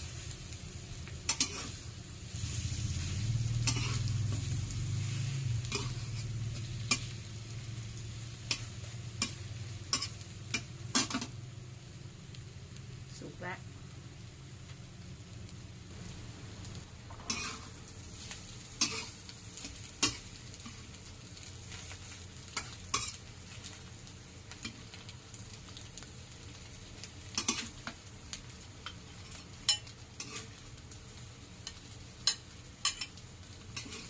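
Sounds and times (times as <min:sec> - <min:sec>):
omelette sizzling in a wok: 0:00.0 - 0:34.0
metal spatula scraping a wok: 0:01.2 - 0:07.5, 0:08.1 - 0:11.4, 0:17.1 - 0:21.0, 0:28.9 - 0:30.6, 0:31.6 - 0:34.0.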